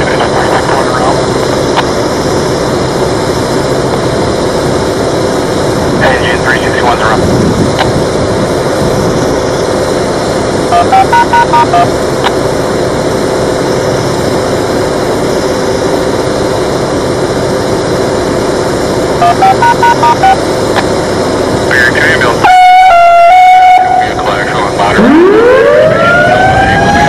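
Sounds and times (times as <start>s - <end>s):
steady background noise: 0.0s - 27.0s
siren alert tone: 10.7s - 11.9s, 19.2s - 20.4s, 22.2s - 27.0s
stepped electronic notes: 19.2s - 20.4s.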